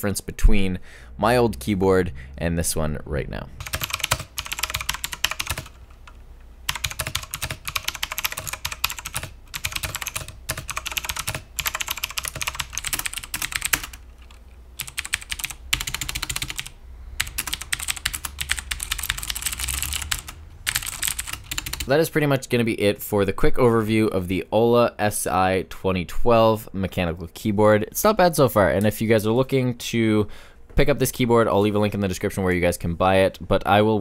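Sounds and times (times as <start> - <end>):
typing on mechanical keyboard: 3.6 - 21.9.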